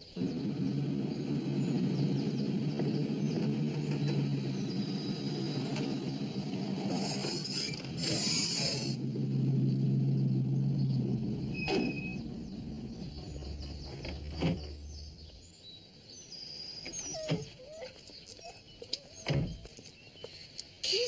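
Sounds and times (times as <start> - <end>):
birds chirping: 0.0 - 21.0
sharp thumps: 0.5 - 15.4.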